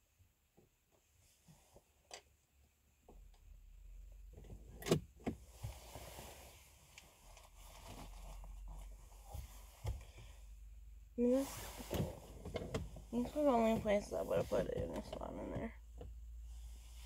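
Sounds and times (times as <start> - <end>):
soft rustle: 0.6 - 2.1, 5.4 - 17.0.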